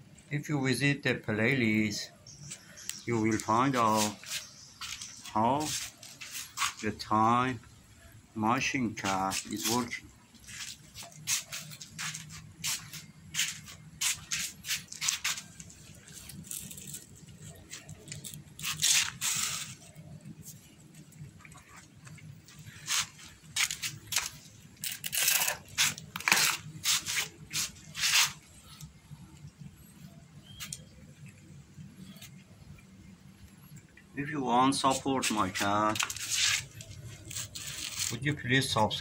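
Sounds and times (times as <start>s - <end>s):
kittens eating from plastic tray: 14.8s - 24.8s.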